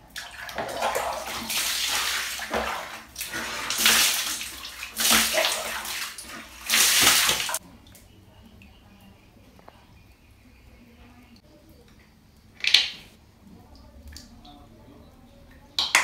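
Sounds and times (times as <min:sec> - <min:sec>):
water pouring and splashing: 0:00.0 - 0:07.6
water scooped from plastic basin: 0:00.2 - 0:07.6.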